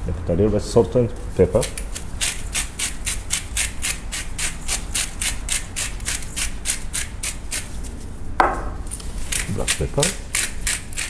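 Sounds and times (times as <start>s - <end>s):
salt and pepper grinding strokes: 1.4s - 8.2s, 9.0s - 11.0s.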